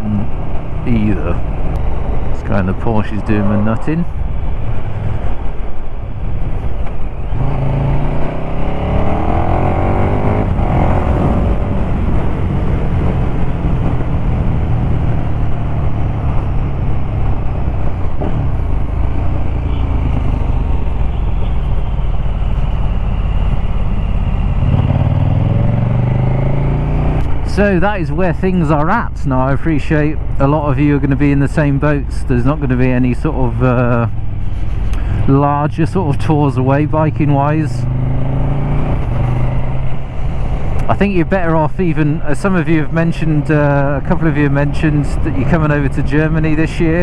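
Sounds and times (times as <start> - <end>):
wind rush: 0.0 - 28.7.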